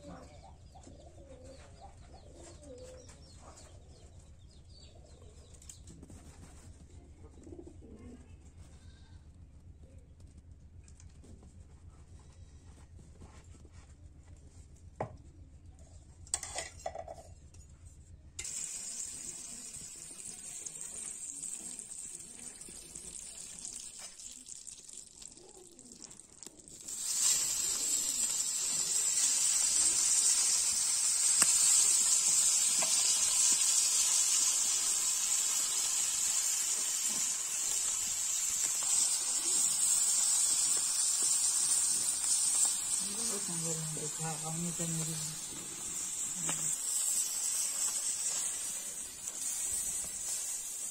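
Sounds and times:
fish frying in sizzling oil: 18.4s - 50.9s.

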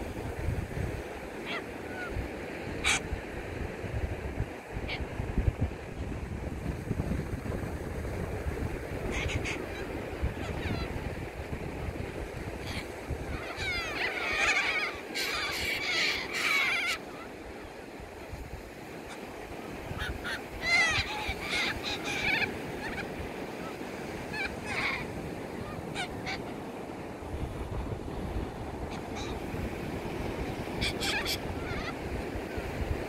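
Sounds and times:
surf washing: 0.0s - 33.0s
cockatoos screeching: 12.7s - 17.3s, 30.8s - 31.9s.

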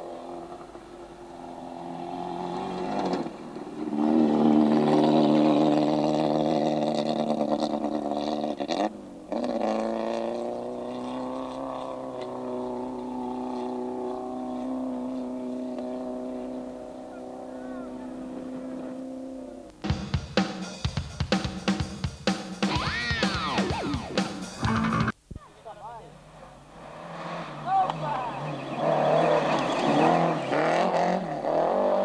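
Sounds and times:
rally car engine revving hard: 0.0s - 19.6s, 26.7s - 32.0s.

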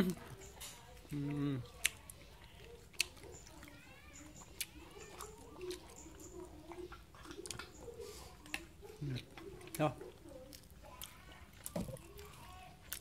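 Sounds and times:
dog chewing: 0.0s - 13.0s
faint voices: 0.0s - 13.0s.

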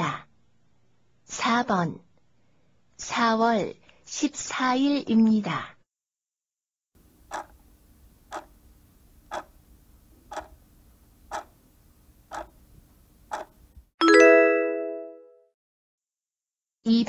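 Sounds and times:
timer ticking: 7.3s - 7.6s, 8.3s - 8.5s, 9.3s - 9.6s, 10.3s - 10.6s, 11.3s - 11.6s, 12.3s - 12.6s, 13.3s - 13.6s
multi-tone chime: 14.0s - 15.4s.

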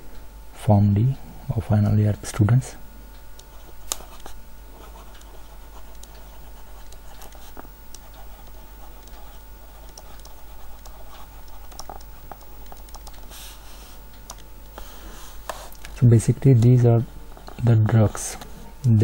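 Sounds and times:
stylus tapping and scratching screen: 3.4s - 13.4s, 14.3s - 18.5s.

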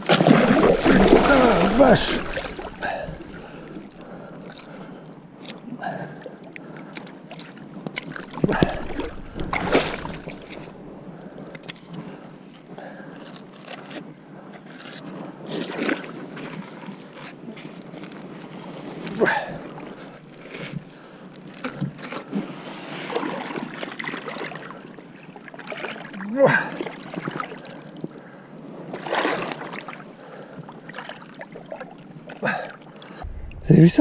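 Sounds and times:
shallow water splashing: 0.0s - 12.2s
loud splashes or thumps: 0.1s - 3.9s, 8.4s - 10.8s.

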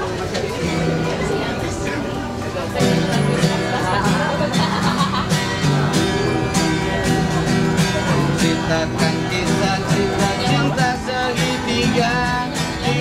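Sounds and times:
acoustic guitar strumming: 0.0s - 13.0s
man singing: 8.0s - 13.0s.

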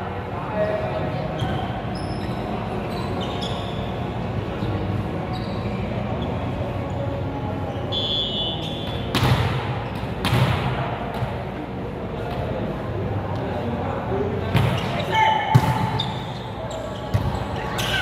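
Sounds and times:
sneaker squeaks on court: 1.3s - 4.0s, 4.6s - 7.0s, 7.7s - 10.5s, 14.5s - 18.0s
volleyball hits echoing: 8.9s - 11.4s, 14.5s - 16.2s.

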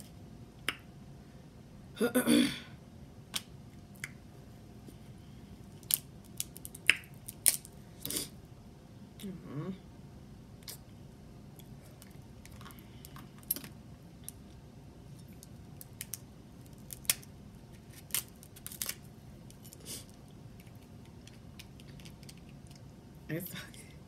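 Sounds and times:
crab shells cracking: 5.8s - 7.8s, 15.4s - 17.3s, 17.9s - 19.1s, 20.6s - 22.8s.

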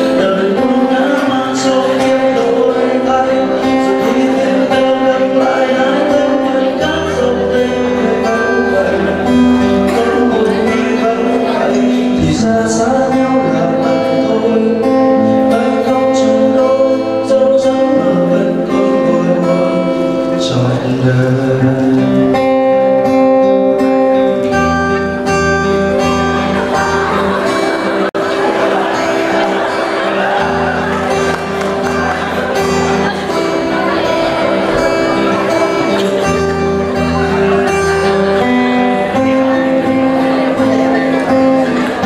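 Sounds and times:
acoustic guitar music: 0.0s - 42.0s.

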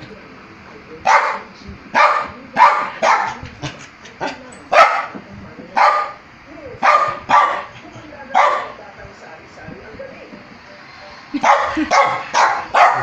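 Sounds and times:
small dog barking: 1.1s - 1.4s, 2.0s - 3.4s, 4.7s - 5.2s, 5.8s - 6.2s, 6.8s - 8.8s, 11.4s - 13.0s.

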